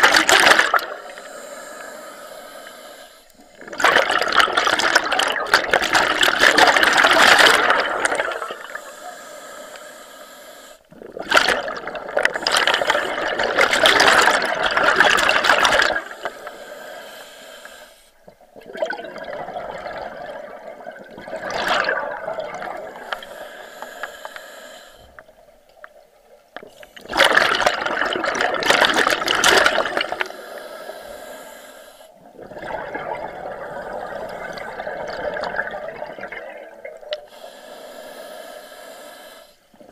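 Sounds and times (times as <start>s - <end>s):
exhaled bubbles rushing: 0.0s - 1.2s, 3.4s - 8.8s, 10.9s - 16.4s, 18.2s - 23.4s, 26.5s - 30.3s, 32.2s - 37.3s
regulator hiss: 8.5s - 10.9s, 16.0s - 18.2s, 23.0s - 25.1s, 30.2s - 32.2s, 37.3s - 39.7s.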